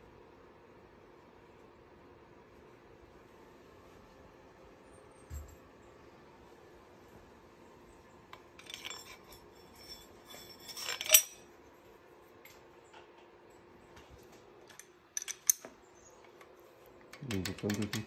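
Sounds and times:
metal rods rattling in tubes: 8.6s - 11.4s.

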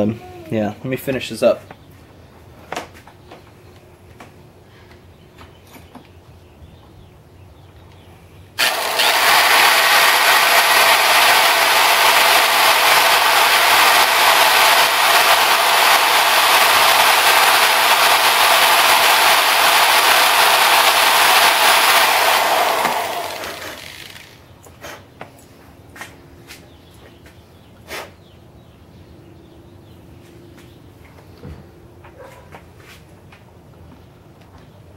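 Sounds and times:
electric drill boring: 8.6s - 24.4s.

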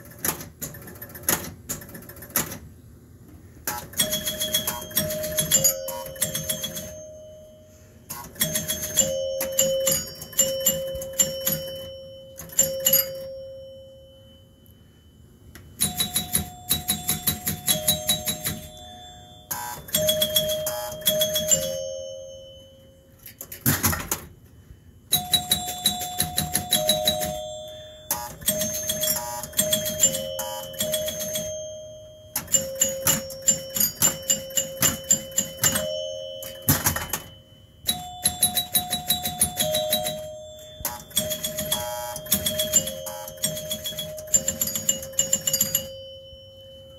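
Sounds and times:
pinball score reels clicking: 0.0s - 2.7s, 3.7s - 7.0s, 8.1s - 13.3s, 15.8s - 18.8s, 19.4s - 21.9s, 25.2s - 31.7s, 32.3s - 46.0s
pinball chimes ringing: 3.7s - 24.3s, 25.1s - 46.9s.

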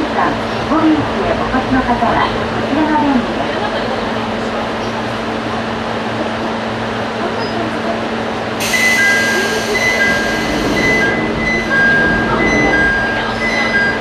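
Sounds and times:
train electrical hum: 0.0s - 14.0s
short high tones: 8.6s - 14.0s.

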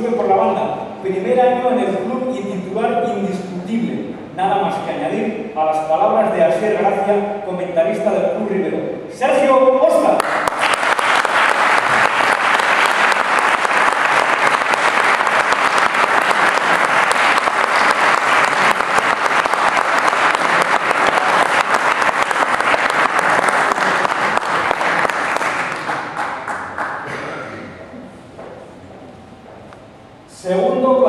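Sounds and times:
audience applauding: 10.2s - 27.4s.

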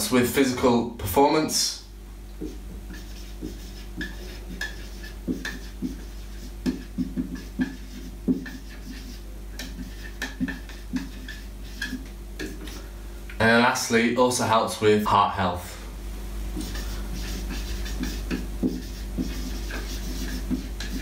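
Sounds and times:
marker squeaking on whiteboard: 2.4s - 12.8s, 16.6s - 21.0s.

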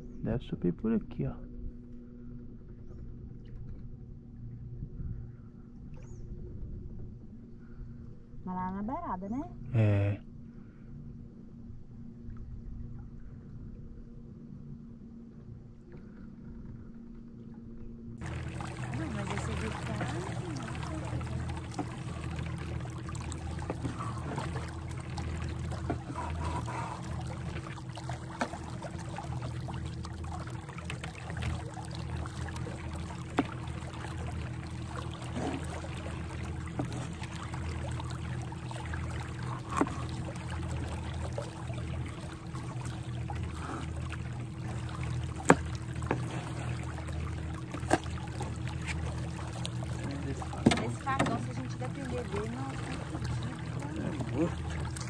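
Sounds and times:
low hum: 0.0s - 55.0s
water trickling: 18.2s - 55.0s.

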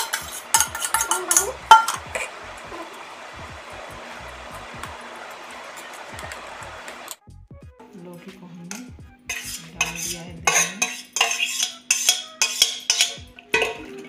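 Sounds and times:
spoon scraping steel pot: 0.0s - 2.3s, 8.7s - 14.0s.

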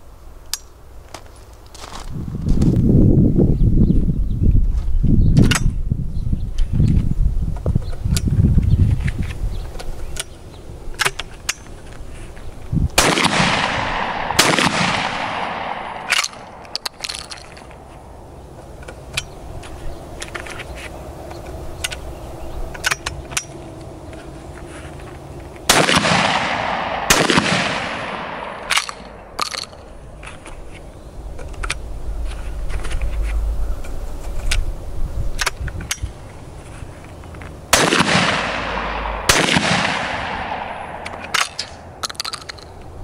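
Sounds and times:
shotgun shots with ringing echo: 13.0s - 16.7s, 25.7s - 29.4s, 37.7s - 41.2s
metallic clicks of shotgun loading: 13.0s - 17.8s, 22.7s - 23.6s, 26.0s - 30.6s, 37.4s - 42.9s.

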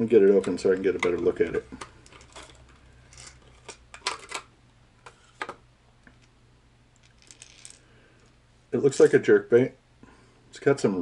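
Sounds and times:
plastic packaging clicks and crackles: 0.4s - 4.5s.

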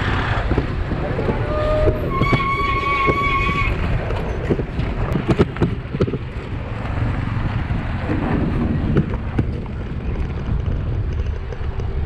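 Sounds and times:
wind buffeting microphone: 0.0s - 12.0s
bicycle knocks on rough road: 4.1s - 6.6s.

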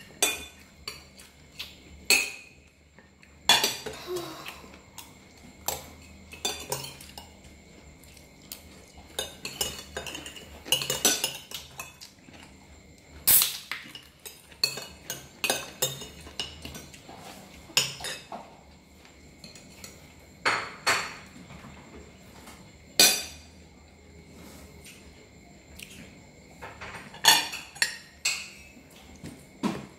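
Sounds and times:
spoons clinking on plates: 0.0s - 4.0s, 5.0s - 7.5s, 8.6s - 12.4s, 13.3s - 18.4s, 22.9s - 23.5s, 26.6s - 28.8s.

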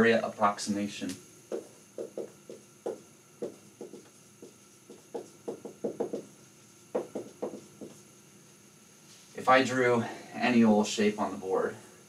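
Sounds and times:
marker writing on a whiteboard: 1.5s - 6.3s, 7.0s - 8.0s.

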